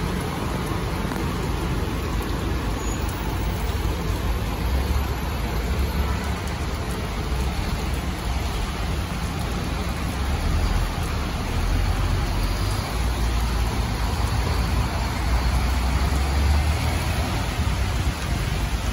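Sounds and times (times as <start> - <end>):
rain hiss: 0.0 - 18.9
traffic on wet road: 0.0 - 18.9.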